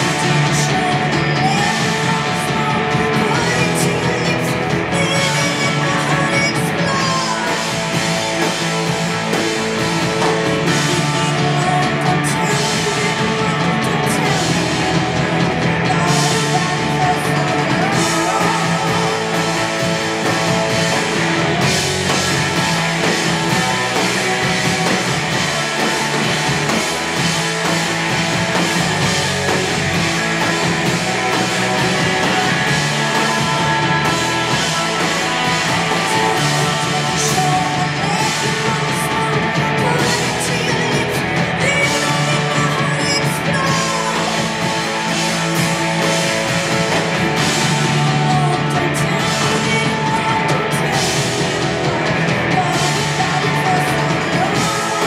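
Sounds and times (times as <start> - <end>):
drums: 0.0 - 55.0
electric guitars: 0.0 - 55.0
person singing: 0.0 - 55.0.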